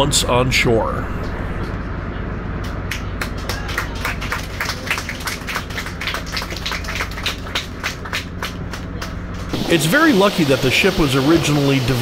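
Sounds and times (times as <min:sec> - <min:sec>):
helicopter rotor pulsing: 0:05.2 - 0:12.0.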